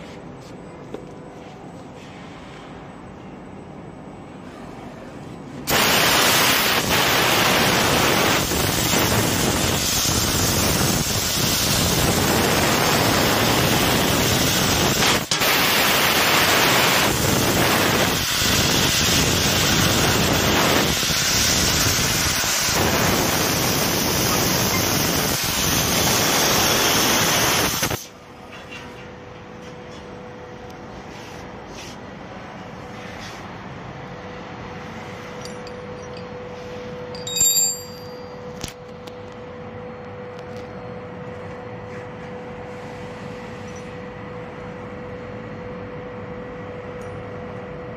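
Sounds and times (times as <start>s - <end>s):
laser cutter gas jet hissing: 5.7s - 28.1s.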